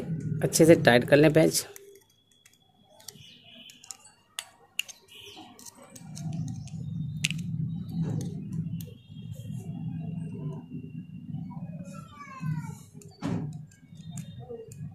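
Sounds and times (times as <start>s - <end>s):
metal clicks and taps: 1.7s - 5.0s, 13.0s - 14.9s.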